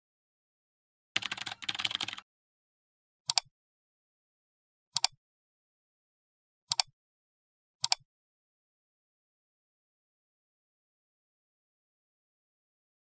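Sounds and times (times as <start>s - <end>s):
keyboard typing: 1.2s - 2.3s
mouse clicks: 3.3s - 3.5s, 5.0s - 5.2s, 6.7s - 6.9s, 7.8s - 8.0s.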